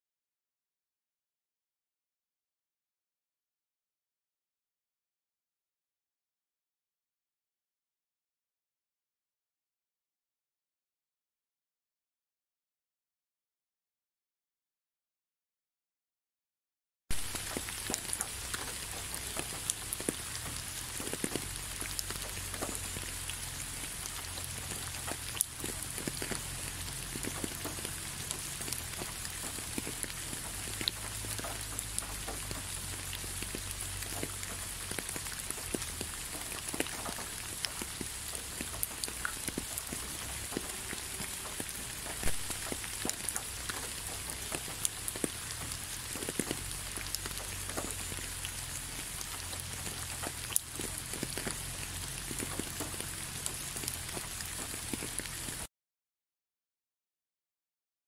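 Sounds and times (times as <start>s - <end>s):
rain on a wet road: 17.1s - 55.7s
raindrops tapping: 17.1s - 55.7s.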